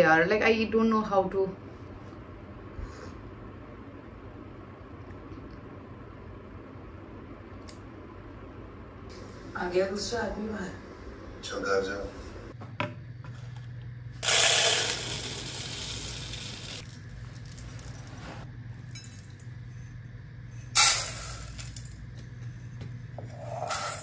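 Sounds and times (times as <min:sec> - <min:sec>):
rice grains pouring: 0:14.2 - 0:18.1.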